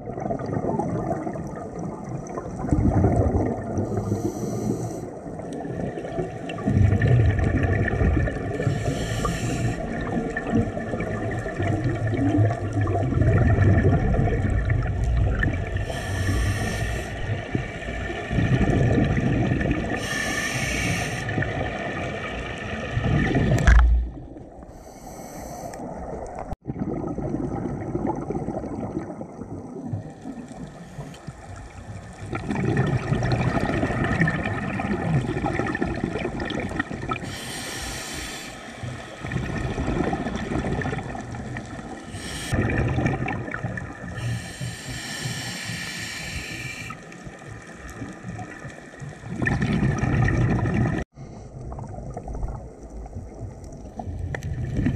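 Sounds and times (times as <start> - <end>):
bubbling exhalations underwater: 0.0 - 4.2, 5.6 - 20.3, 26.2 - 37.5, 39.2 - 44.6, 47.9 - 54.9
regulator inhalation hiss: 4.0 - 5.1, 8.6 - 9.9, 15.8 - 17.3, 20.0 - 21.4, 24.7 - 25.9, 37.2 - 38.9, 42.1 - 42.6, 44.2 - 47.1.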